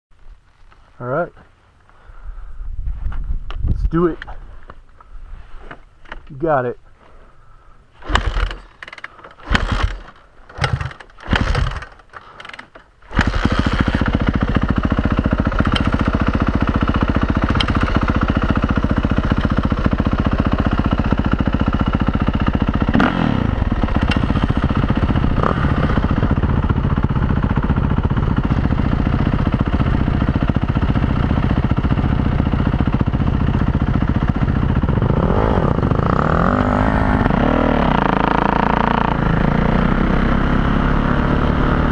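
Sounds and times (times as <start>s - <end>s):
dirt bike engine idling: 6.4s - 41.1s
dirt bike engine revving: 8.0s - 41.9s.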